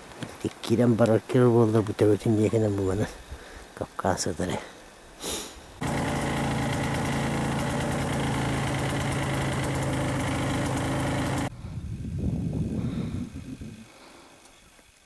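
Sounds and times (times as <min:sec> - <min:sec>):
snowmobile engine running: 0:05.8 - 0:11.5.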